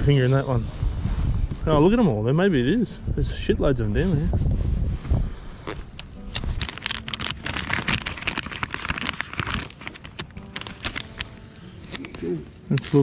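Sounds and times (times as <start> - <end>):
plastic packet crinkling: 5.7 - 13.0.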